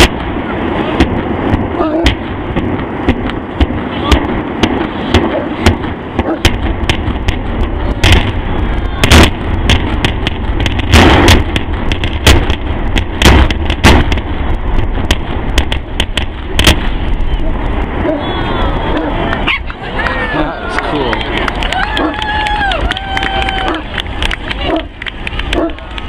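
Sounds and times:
heavy booms: 0:00.0 - 0:26.0
demolition charge cracks: 0:20.9 - 0:26.0.

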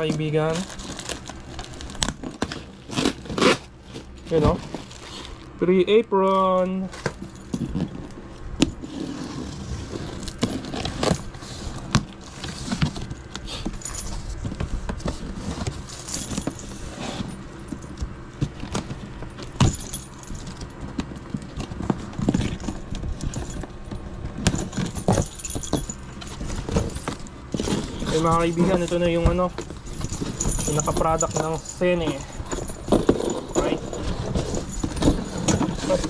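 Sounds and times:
cardboard flaps rustling: 0:00.0 - 0:05.5
key scraping packing tape: 0:00.0 - 0:05.5
keys jangling: 0:12.5 - 0:14.4, 0:15.8 - 0:18.2, 0:19.1 - 0:36.0.

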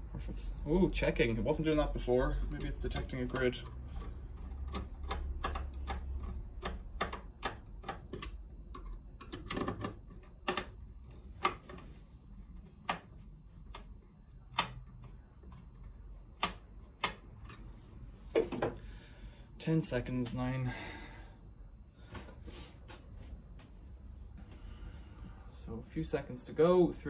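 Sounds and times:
low hum: 0:00.0 - 0:27.0
inverter relays clicking: 0:00.3 - 0:10.8.

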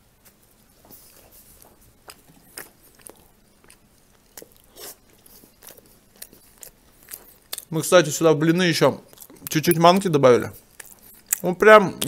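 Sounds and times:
man chewing bread: 0:00.0 - 0:07.8, 0:08.6 - 0:11.5
wet mouth clicks and smacks: 0:10.8 - 0:11.5.

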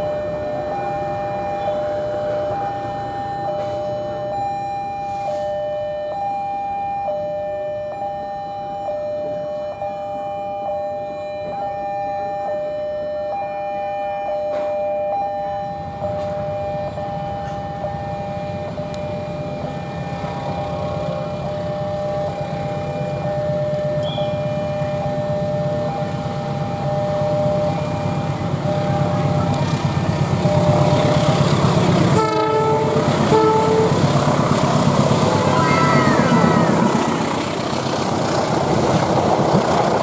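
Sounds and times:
train rumbling: 0:00.0 - 0:05.7, 0:14.4 - 0:40.0
level crossing two-tone alarm: 0:00.0 - 0:37.2.

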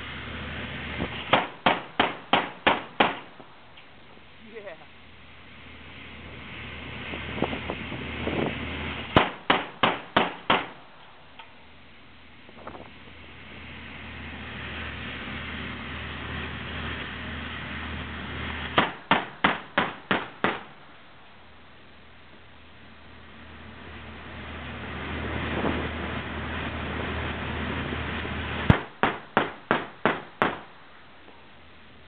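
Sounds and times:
ship noise: 0:00.0 - 0:32.0
wind: 0:00.0 - 0:32.0
heavy gun firing: 0:01.2 - 0:03.3, 0:09.2 - 0:10.8, 0:18.7 - 0:20.8, 0:28.7 - 0:30.7.

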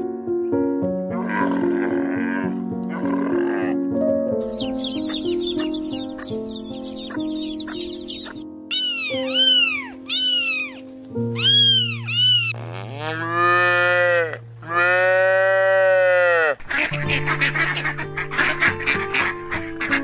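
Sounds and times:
background music: 0:00.0 - 0:15.7, 0:16.7 - 0:20.0
cow mooing: 0:01.1 - 0:03.8, 0:12.6 - 0:16.6
ducks quacking: 0:04.5 - 0:10.8, 0:16.4 - 0:20.0
cat meowing: 0:04.6 - 0:10.8, 0:11.4 - 0:12.6.

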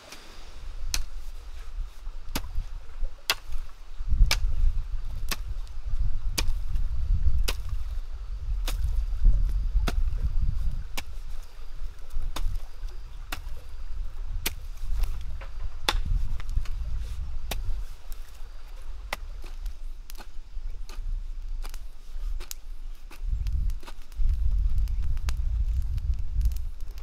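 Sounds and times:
hoe chopping into dry soil: 0:00.0 - 0:01.4, 0:02.3 - 0:06.8, 0:07.4 - 0:07.8, 0:08.6 - 0:11.5, 0:12.1 - 0:13.7, 0:14.3 - 0:18.4, 0:19.1 - 0:24.2
steady low rumble: 0:04.0 - 0:27.0.

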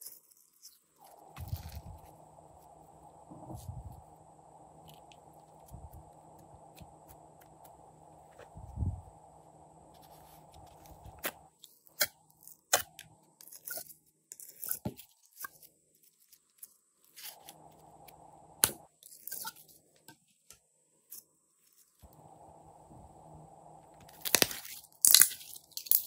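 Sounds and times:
slime crackling and popping: 0:24.0 - 0:26.0.

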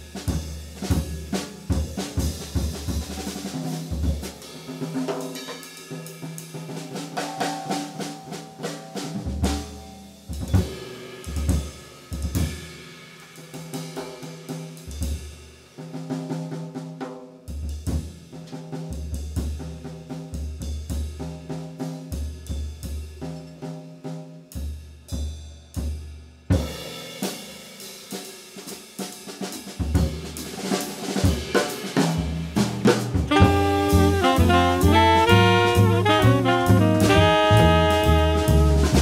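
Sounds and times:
jazz drum kit with sticks: 0:00.0 - 0:39.0
held notes from jazz ensemble: 0:33.2 - 0:39.0.

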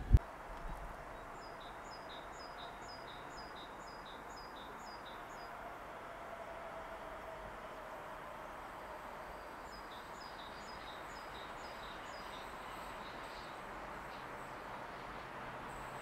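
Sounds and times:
faint steady background noise: 0:00.0 - 0:16.0.

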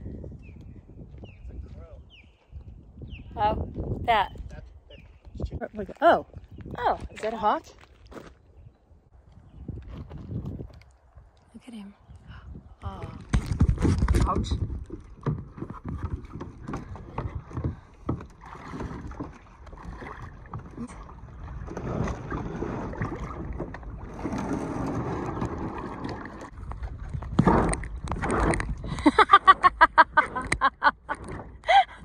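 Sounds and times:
paddle knocking plastic hull: 0:13.3 - 0:31.7
paddles splashing in water: 0:13.3 - 0:31.7.

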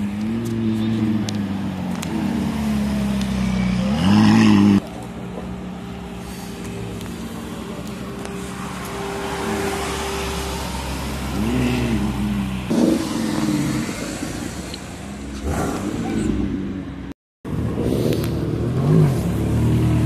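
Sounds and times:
car engine revving: 0:11.0 - 0:16.8.

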